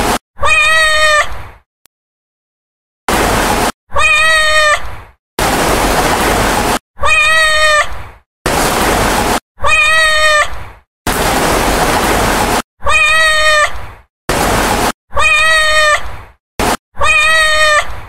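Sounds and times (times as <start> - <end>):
cat meowing: 0.4 - 1.4, 3.9 - 4.9, 7.0 - 8.0, 9.6 - 10.6, 12.8 - 13.8, 15.1 - 16.1, 17.0 - 18.0.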